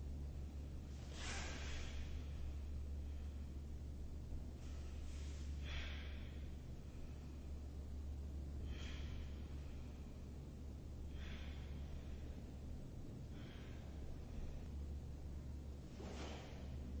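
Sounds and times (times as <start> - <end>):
steady low hum: 0.0 - 17.0
person breathing: 1.1 - 3.8, 4.7 - 7.6, 8.6 - 14.9, 15.9 - 16.9.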